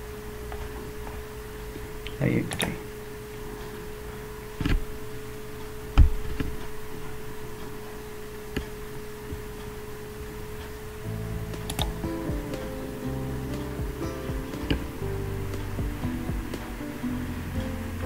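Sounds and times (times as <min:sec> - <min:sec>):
steady hum: 0:00.0 - 0:18.0
music: 0:11.0 - 0:18.0
computer mouse clicks: 0:11.6 - 0:12.0.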